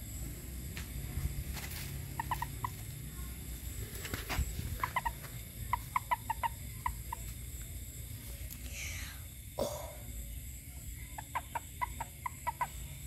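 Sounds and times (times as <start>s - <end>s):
frogs chirping: 0.0s - 13.0s
steady low rumble: 0.0s - 13.0s.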